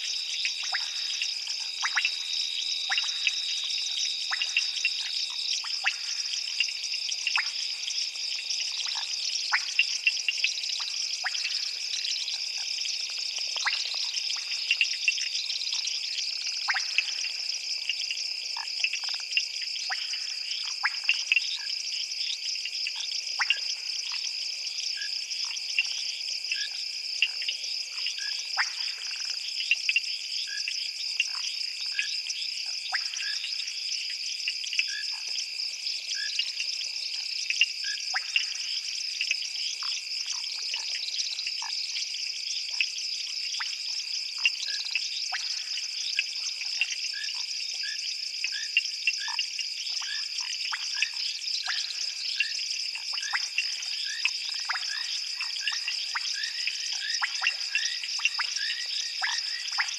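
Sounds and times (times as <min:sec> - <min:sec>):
frog calls: 0:00.0 - 0:07.8, 0:37.6 - 0:41.8, 0:43.6 - 0:59.9
frog clicks: 0:00.4 - 0:02.2, 0:02.9 - 0:03.5, 0:04.3 - 0:06.7, 0:13.0 - 0:15.9, 0:16.7 - 0:18.0, 0:22.9 - 0:24.2, 0:37.5 - 0:41.8, 0:44.4 - 0:59.9.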